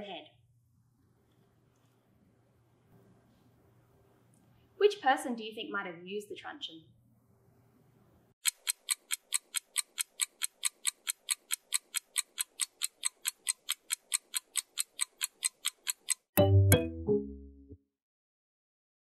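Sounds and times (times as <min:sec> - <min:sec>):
clock ticking timer: 0:08.4 - 0:16.5.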